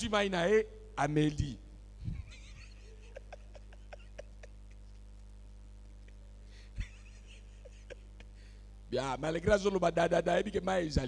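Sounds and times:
low electrical hum: 0:00.0 - 0:11.0
soft laughter: 0:02.1 - 0:05.0, 0:06.8 - 0:08.5.

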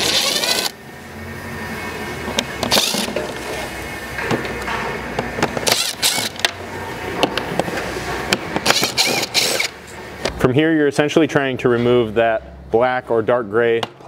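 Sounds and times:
cordless drill motor whirring: 0:00.0 - 0:00.8, 0:02.7 - 0:03.1, 0:05.6 - 0:06.4, 0:08.7 - 0:09.7.

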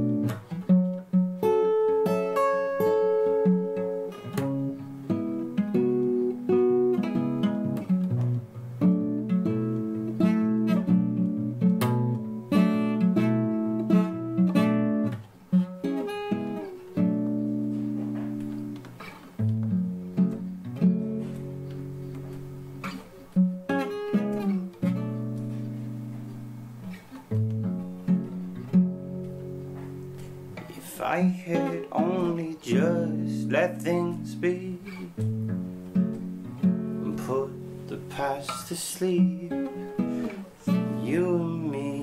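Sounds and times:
fingerpicked acoustic guitar: 0:00.0 - 0:42.0.

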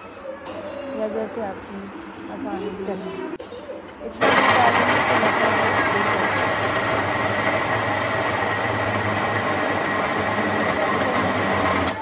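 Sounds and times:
blender motor grinding: 0:04.2 - 0:12.0.

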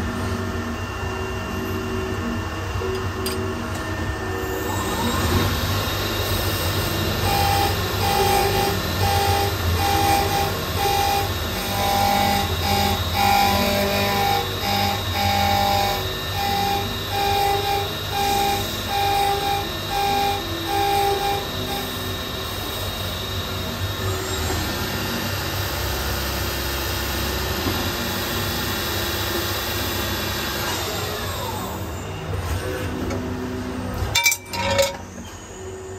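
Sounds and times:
low machine hum: 0:00.0 - 0:26.4
lathe cutting whine: 0:00.0 - 0:33.9.

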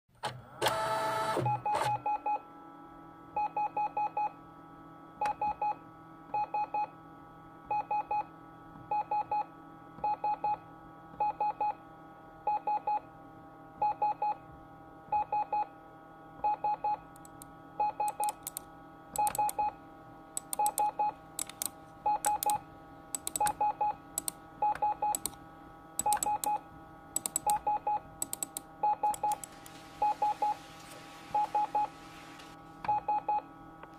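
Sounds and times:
steady electronic hum: 0:16.6 - 0:33.9
sharp clicks: 0:17.2 - 0:17.5, 0:18.1 - 0:19.6, 0:20.4 - 0:23.6, 0:24.2 - 0:24.4, 0:25.1 - 0:25.4, 0:26.0 - 0:26.6, 0:27.2 - 0:27.6, 0:28.2 - 0:29.8.

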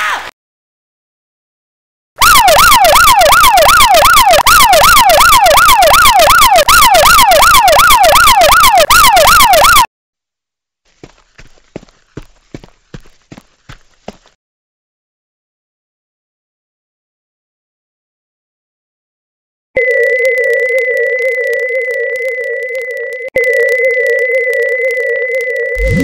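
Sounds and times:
ambulance siren yelping: 0:02.2 - 0:09.9, 0:21.2 - 0:26.0.

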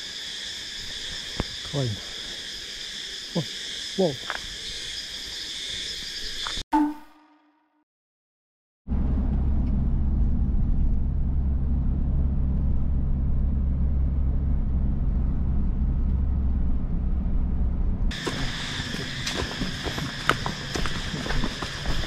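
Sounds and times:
vehicle engine humming: 0:08.9 - 0:22.0.

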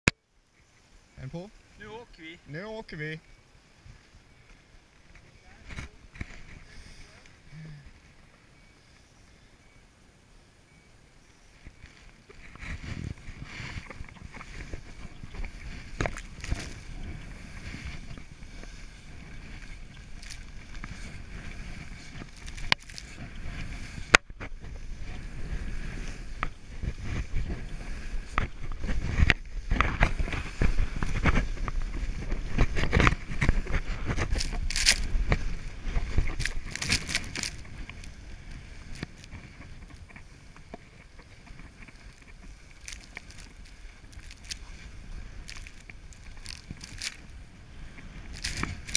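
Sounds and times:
skis swishing through snow: 0:11.3 - 0:48.9
wind buffeting microphone: 0:11.6 - 0:48.9.

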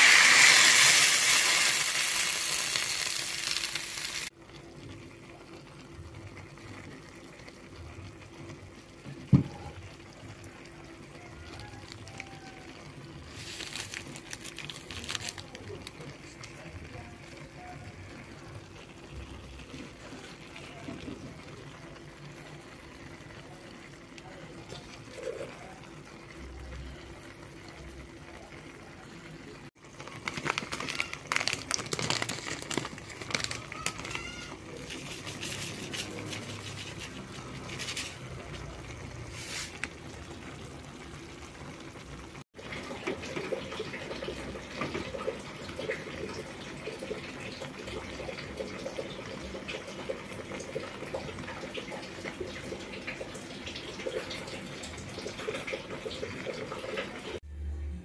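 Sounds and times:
leaves sizzling in a wok: 0:00.0 - 0:04.4, 0:09.9 - 0:22.8, 0:29.9 - 0:49.5
liquid pouring into a pan: 0:00.0 - 0:57.4
liquid bubbling in a pan: 0:00.0 - 0:57.5.

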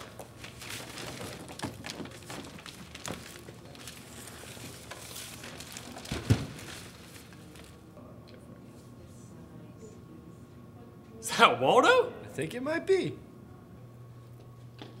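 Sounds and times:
papers shuffling: 0:00.0 - 0:07.9.

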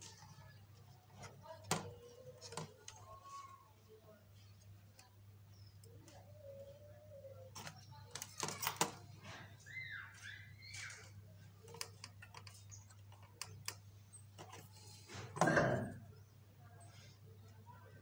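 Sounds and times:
small clicks and taps: 0:10.8 - 0:14.7.

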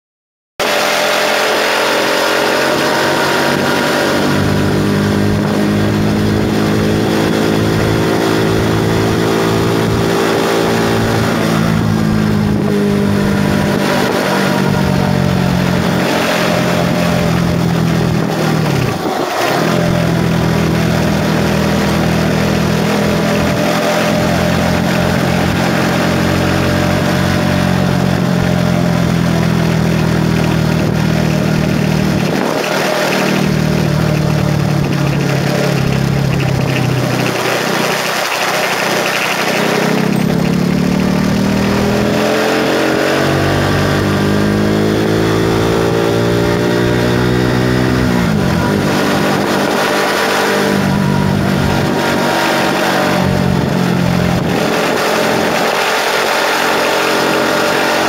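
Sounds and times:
motorcycle engine running: 0:00.6 - 0:58.0
wind rushing over microphone: 0:39.5 - 0:56.3.

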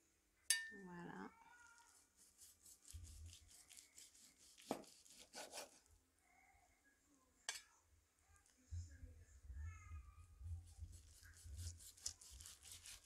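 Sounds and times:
knife sawing through meat: 0:02.2 - 0:05.8, 0:11.1 - 0:13.0.

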